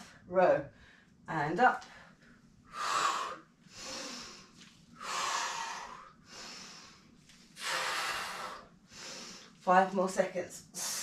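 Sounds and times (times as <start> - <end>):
woman breathing heavily: 1.8 - 9.6.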